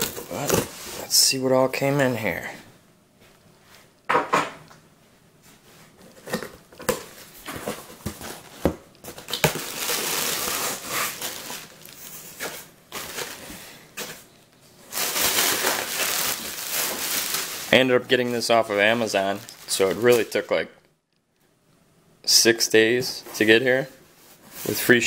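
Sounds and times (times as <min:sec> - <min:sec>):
plastic packing crinkling: 0:00.0 - 0:01.0, 0:06.1 - 0:14.2, 0:14.9 - 0:20.6.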